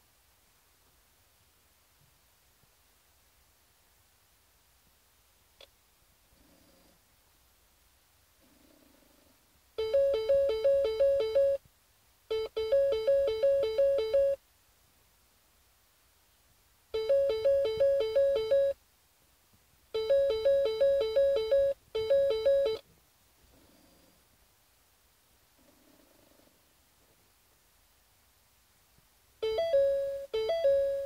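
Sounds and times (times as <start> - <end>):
electronic two-tone warble beeping: 20.0 - 22.8, 29.4 - 31.0.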